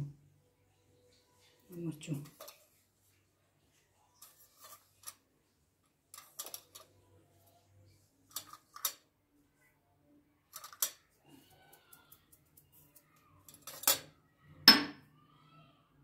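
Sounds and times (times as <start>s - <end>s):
spoon and containers clicking: 6.2s - 7.0s, 8.3s - 9.0s, 10.5s - 11.1s, 13.5s - 14.1s.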